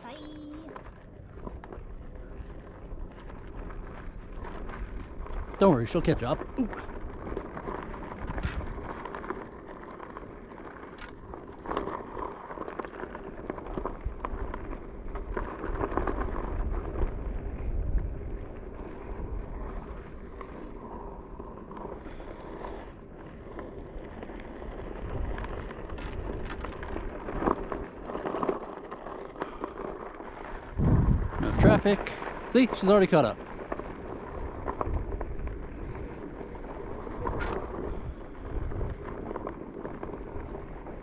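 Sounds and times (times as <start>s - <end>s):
board rolling over rough ground: 0.0s - 41.0s
steady low rumble: 0.0s - 41.0s
wind on microphone: 6.9s - 9.1s, 13.6s - 27.8s, 30.5s - 32.9s, 33.8s - 41.0s.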